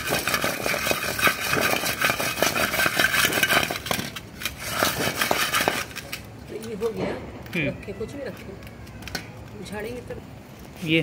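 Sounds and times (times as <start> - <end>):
food balls rattling in metal bowl: 0.0 - 6.9.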